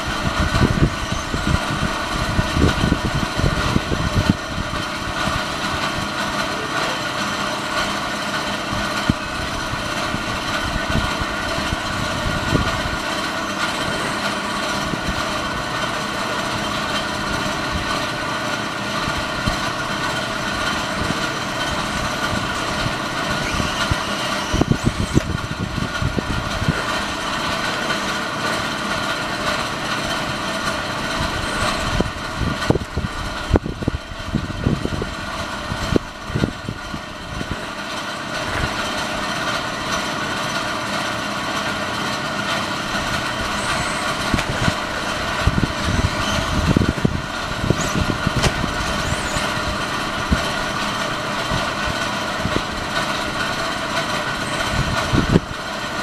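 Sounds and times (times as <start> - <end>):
electric motor whine: 0.0 - 35.1, 42.7 - 51.8.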